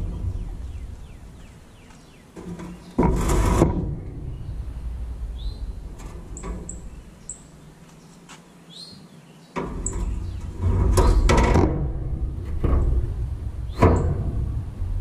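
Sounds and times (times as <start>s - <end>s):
birds chirping: 0.0s - 11.5s, 13.5s - 14.2s
metal grill grates clanking: 2.3s - 4.4s, 5.9s - 7.4s, 9.6s - 14.8s.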